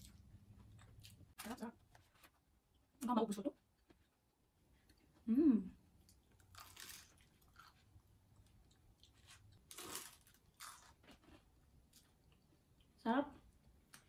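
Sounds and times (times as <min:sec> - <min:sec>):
person humming: 0:05.3 - 0:05.8
person chewing crunchy pastry: 0:06.0 - 0:12.9.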